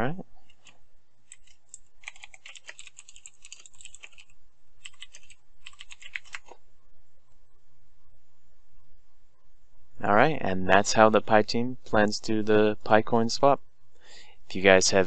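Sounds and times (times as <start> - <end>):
typing on computer keyboard: 1.3 - 6.5.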